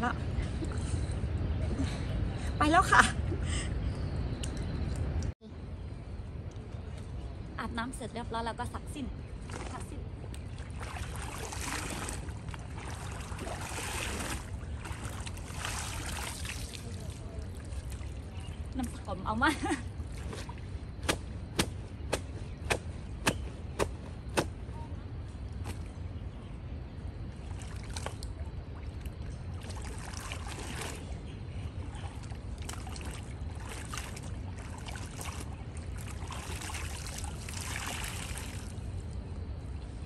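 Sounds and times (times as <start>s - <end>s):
steady low rumble: 0.0s - 40.0s
water splashing and sloshing: 9.0s - 40.0s
wet cloth slapping: 20.2s - 24.6s.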